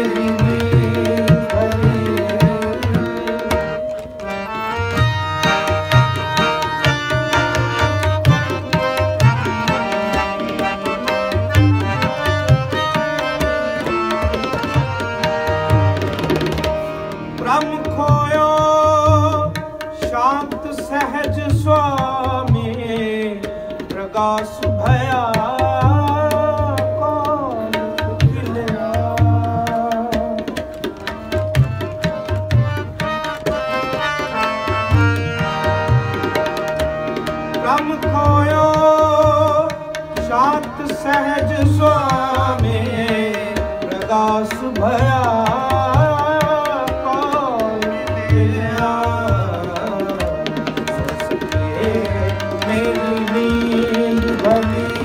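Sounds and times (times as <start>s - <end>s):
sliding melody: 0.0s - 17.8s, 30.8s - 39.0s
tabla playing: 0.0s - 55.0s.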